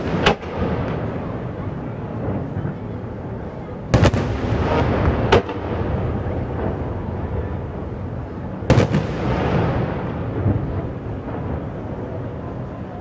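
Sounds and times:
continuous low rumble: 0.0 - 13.0
fireworks bangs: 0.0 - 13.0.

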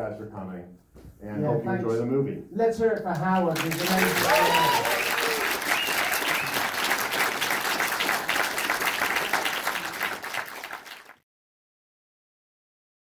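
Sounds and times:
audience applauding: 3.1 - 11.2.

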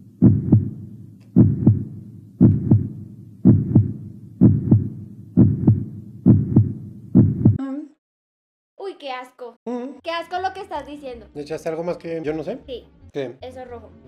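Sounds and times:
heartbeat double thump: 0.0 - 7.6.

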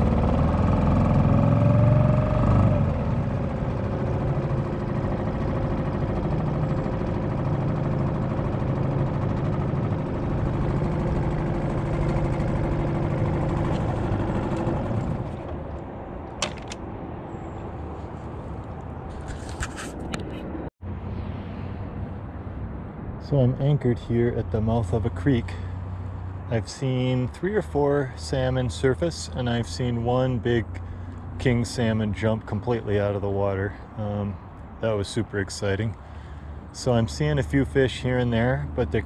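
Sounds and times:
outboard motor running: 0.0 - 15.6.

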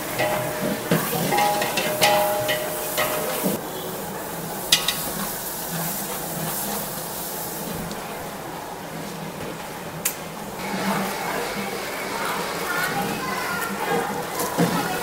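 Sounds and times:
ladles clanking against pots: 0.0 - 3.6, 4.6 - 6.8
frying sizzle: 0.0 - 15.0
metallic rings: 0.1 - 3.6.

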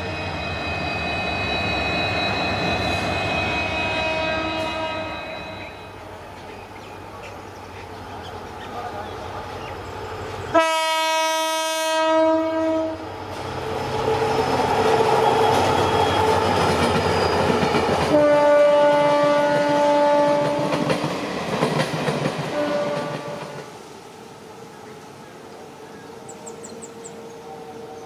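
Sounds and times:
diesel locomotive engine: 0.0 - 28.0
locomotive horn blasts: 2.8 - 6.0, 10.5 - 13.1, 18.1 - 20.8, 22.5 - 23.6.

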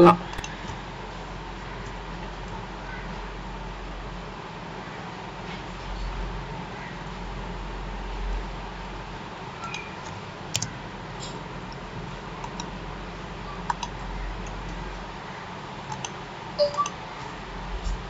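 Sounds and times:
steady low hum: 0.0 - 18.0
keyboard keystrokes: 0.3 - 0.6
mouse clicks: 13.7 - 14.6.

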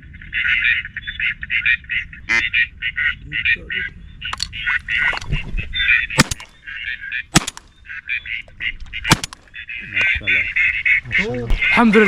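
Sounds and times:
ducks quacking: 0.0 - 12.0
sharp cracks: 6.2 - 6.6, 7.3 - 7.8, 9.0 - 9.6.

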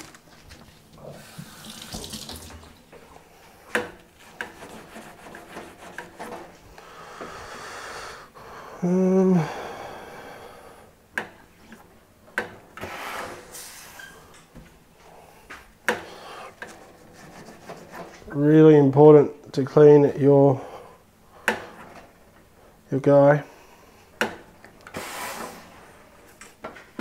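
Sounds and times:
tap water running into sink: 1.4 - 2.9.

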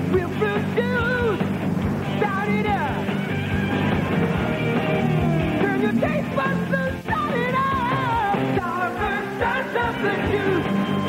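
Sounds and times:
rock and roll jingle: 0.0 - 11.0
person singing: 2.2 - 11.0.

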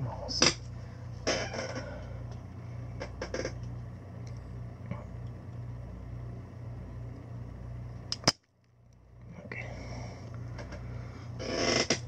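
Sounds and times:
steady low hum: 0.0 - 12.0
desoldering pump snap: 8.1 - 8.5.

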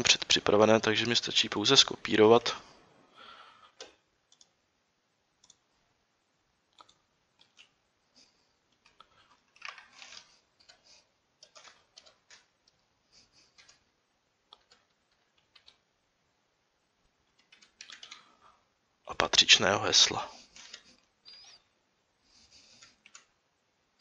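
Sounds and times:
keyboard keystrokes: 11.4 - 12.8, 14.5 - 15.8, 17.3 - 18.3.

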